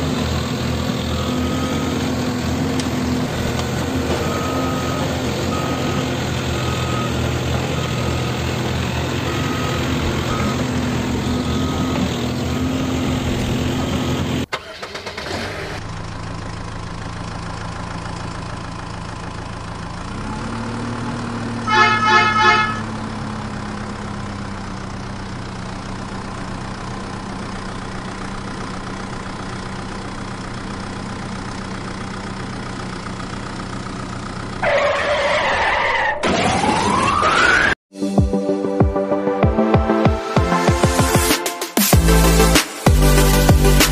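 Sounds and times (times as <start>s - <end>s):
heavy diesel engine running: 0.0s - 34.8s, 42.0s - 43.9s
truck engine revving: 0.0s - 37.8s, 41.9s - 43.9s
high beeping: 4.2s - 8.4s, 9.2s - 13.2s
truck horn blasts: 21.6s - 23.0s.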